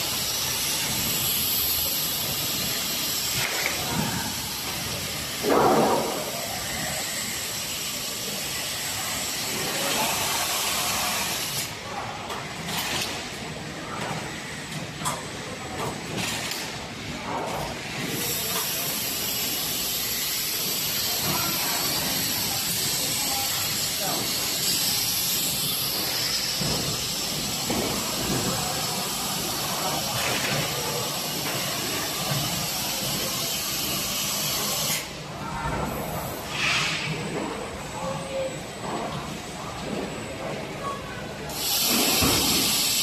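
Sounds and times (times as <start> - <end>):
compressed air hissing: 41.5 - 43.0.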